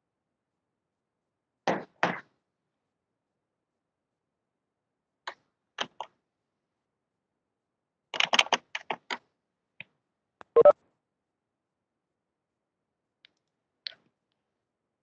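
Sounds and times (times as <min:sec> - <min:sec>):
keyboard and mouse clicks: 0:05.3 - 0:06.2, 0:08.2 - 0:09.2, 0:09.8 - 0:10.8.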